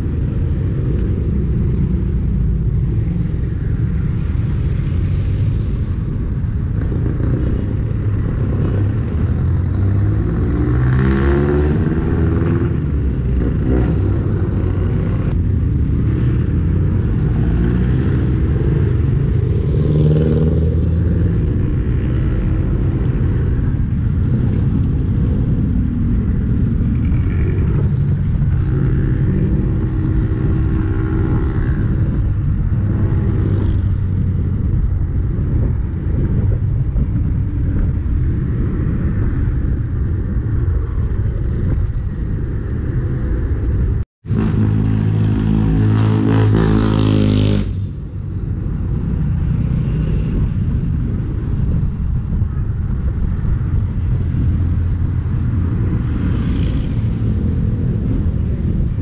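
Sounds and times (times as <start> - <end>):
passing vehicle engines: 0.0 - 59.0
tyres on road: 0.0 - 59.0
wind on microphone: 0.0 - 59.0.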